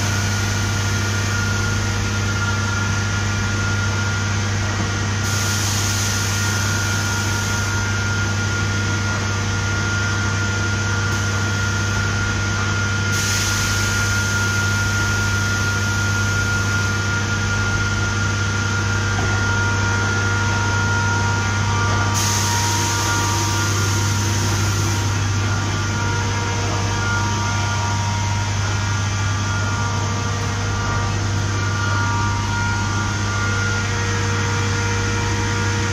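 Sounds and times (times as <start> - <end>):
filling machine humming and whining: 0.0 - 35.9.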